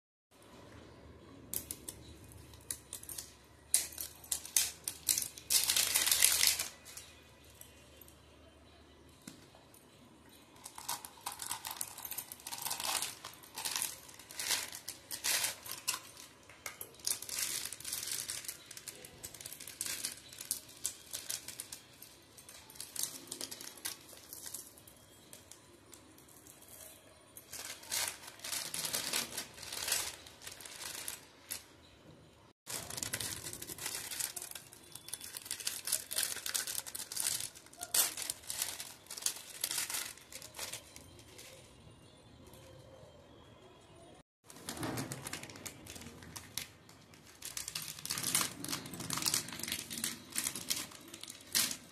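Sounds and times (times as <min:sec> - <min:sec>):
sweet wrappers crinkling: 0:01.5 - 0:31.7, 0:32.6 - 0:43.0, 0:44.5 - 0:51.9
wrapper tearing: 0:01.6 - 0:07.2, 0:10.6 - 0:24.7, 0:27.5 - 0:31.6, 0:32.7 - 0:41.6, 0:44.5 - 0:51.9.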